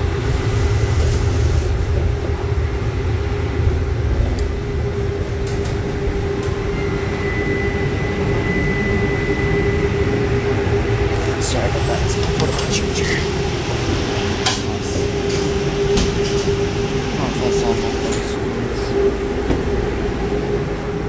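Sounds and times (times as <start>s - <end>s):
constant hum: 0.0s - 21.0s
streetcar rumbling on rails: 0.0s - 21.0s
thin high whine: 6.1s - 19.2s.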